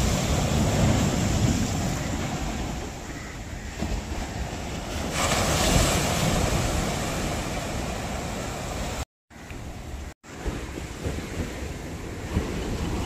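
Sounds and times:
sea waves breaking on rocks: 0:00.0 - 0:03.1, 0:03.8 - 0:09.0
wind buffeting microphone: 0:09.6 - 0:13.0.

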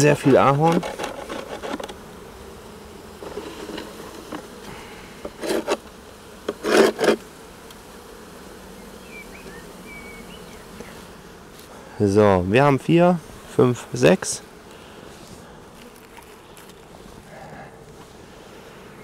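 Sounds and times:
wooden frames scraping: 0:00.0 - 0:02.1, 0:03.2 - 0:07.2
honeybees buzzing: 0:00.0 - 0:19.0.

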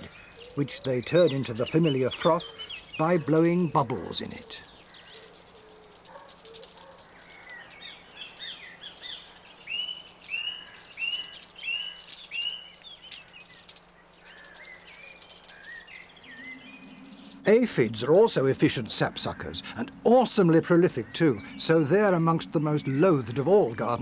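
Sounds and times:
clear whistled bird notes: 0:00.0 - 0:17.5
birdsong: 0:00.0 - 0:24.0.

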